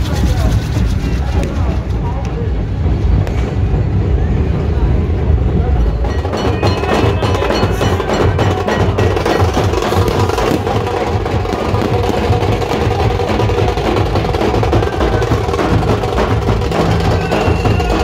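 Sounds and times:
steel drums beaten with sticks: 5.3s - 18.0s.

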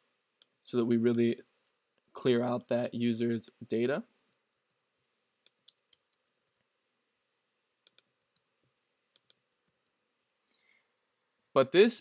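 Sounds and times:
computer keyboard and mouse clicks: 5.4s - 6.6s, 7.8s - 8.5s, 9.1s - 10.0s.

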